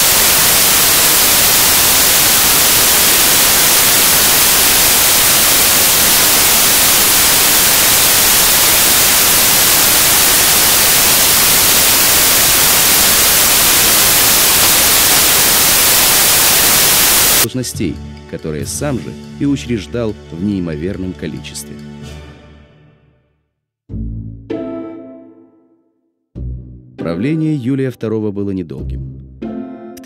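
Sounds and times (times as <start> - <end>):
static hiss: 0.0 - 17.5.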